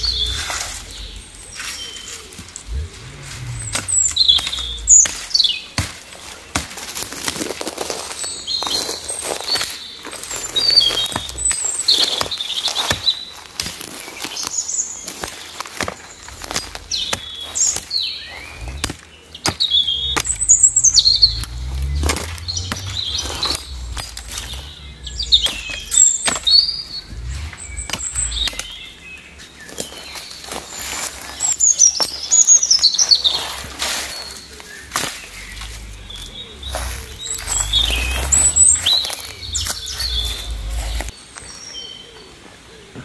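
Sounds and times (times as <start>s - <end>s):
small birds chirping: 0.0s - 43.0s
hatchet chopping wood: 3.7s - 7.9s, 10.9s - 14.5s, 15.1s - 20.4s, 25.5s - 27.3s.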